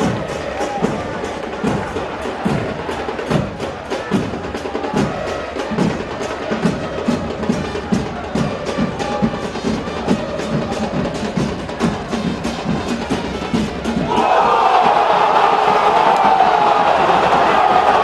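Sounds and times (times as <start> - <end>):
crowd singing: 0.0 - 7.4, 13.8 - 18.0
drums beating fast rhythm: 0.0 - 18.0.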